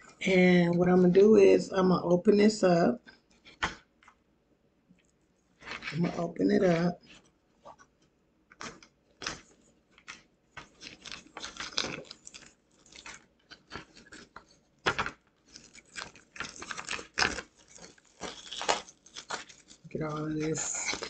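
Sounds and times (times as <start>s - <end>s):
plastic film crinkling and crackling: 3.0s - 4.2s, 5.6s - 21.0s.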